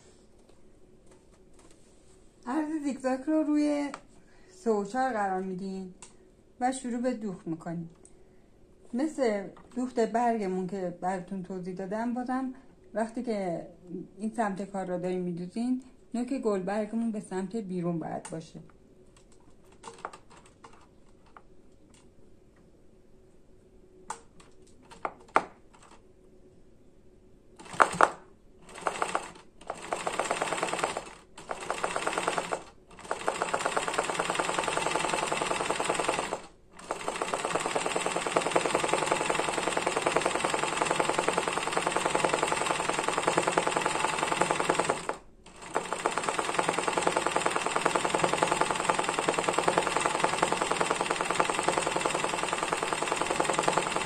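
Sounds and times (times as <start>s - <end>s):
sewing machine clicks: 27.6s - 54.0s
sewing machine stitching: 27.6s - 54.0s.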